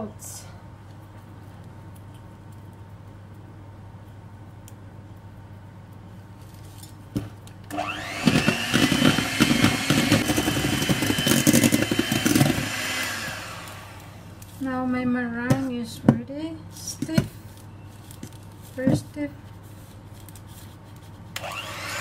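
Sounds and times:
hand mixer motor whining: 7.7s - 14.3s, 21.4s - 22.0s.

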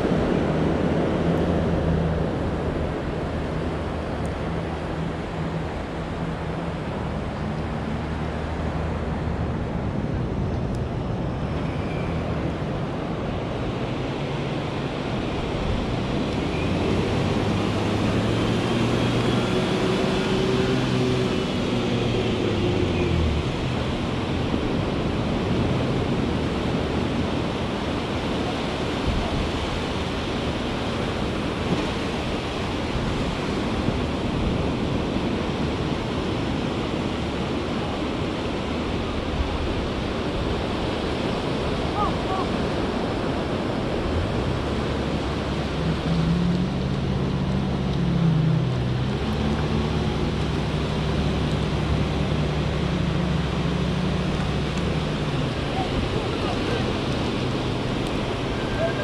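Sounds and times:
engine running: 12.3s - 59.0s
surf breaking on beach: 12.8s - 59.0s.

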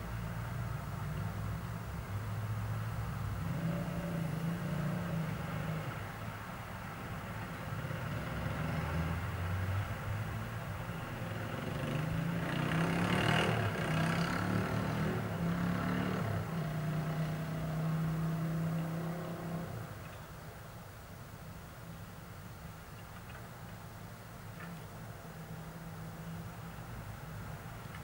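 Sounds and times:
car engine passing: 2.3s - 20.1s.

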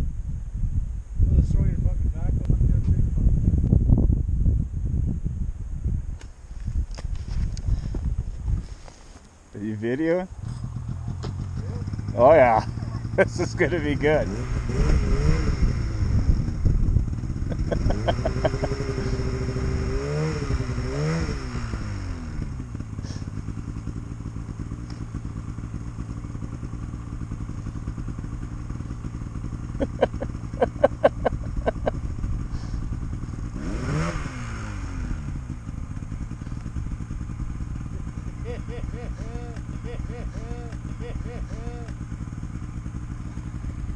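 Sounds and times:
snowmobile engine idling and revving: 6.6s - 43.9s.

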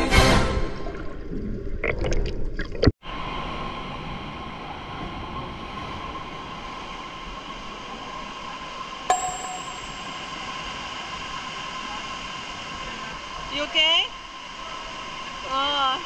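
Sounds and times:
underwater bubbling: 0.8s - 2.9s.

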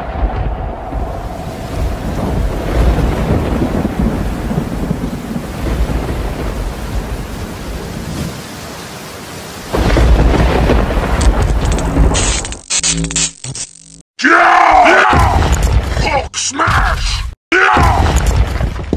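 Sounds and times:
loud thunderclap: 0.0s - 8.4s, 9.6s - 12.2s
rumbling thunder: 0.0s - 8.4s, 9.6s - 12.2s
steady rain: 0.0s - 13.3s.

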